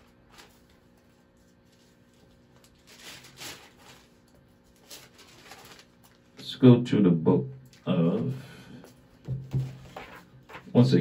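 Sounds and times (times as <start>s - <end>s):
pages being turned: 0.0s - 6.3s, 9.8s - 10.8s
soft handling sounds: 0.0s - 6.4s.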